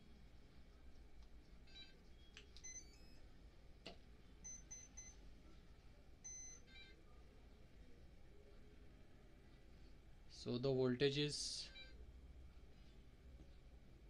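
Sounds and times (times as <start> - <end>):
motor start-up beeps: 6.3 - 6.6.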